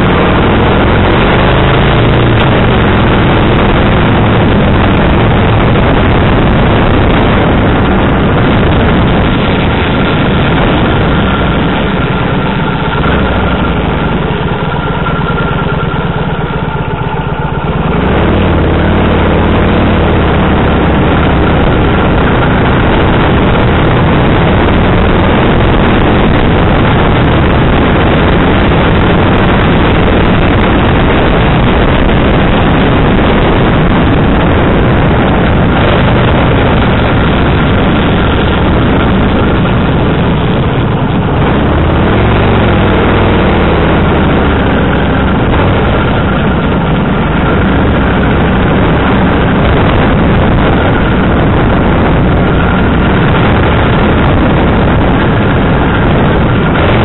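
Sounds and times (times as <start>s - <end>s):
motorcycle engine running: 0.0s - 57.0s
wind rush on microphone: 0.0s - 57.0s.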